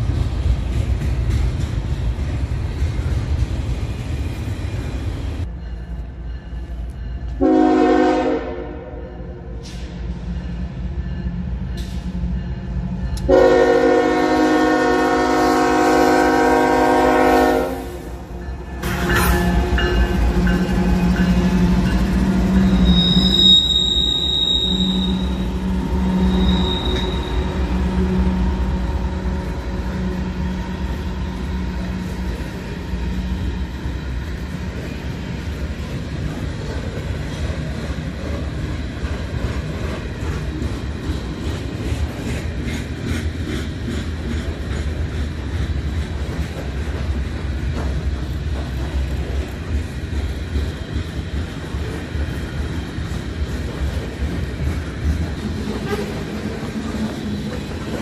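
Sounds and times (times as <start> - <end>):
diesel locomotive engine drone: 0.0 - 58.0
train cars rumbling and clattering: 0.0 - 58.0
short high squeals: 22.8 - 25.4, 26.2 - 27.5.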